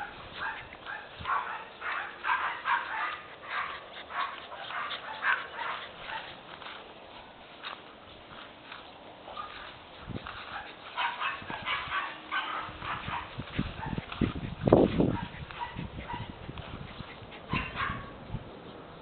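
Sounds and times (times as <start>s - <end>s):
puppy yipping and whimpering: 15.1s - 18.2s.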